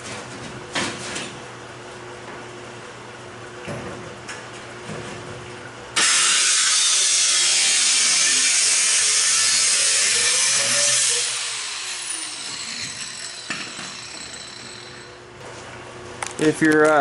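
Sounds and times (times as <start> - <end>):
power cut-off tool hissing: 6.0 - 13.6.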